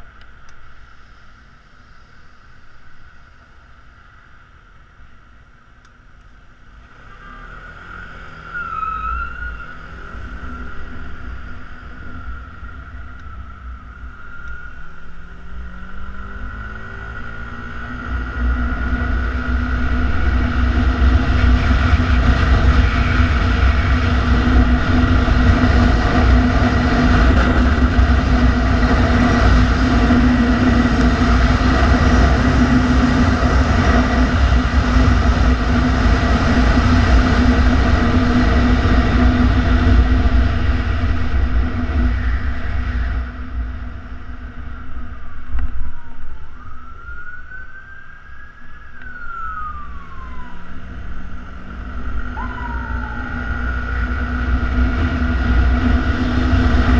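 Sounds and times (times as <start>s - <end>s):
wind buffeting microphone: 18.6s - 51.0s
ambulance siren wailing: 44.7s - 54.9s.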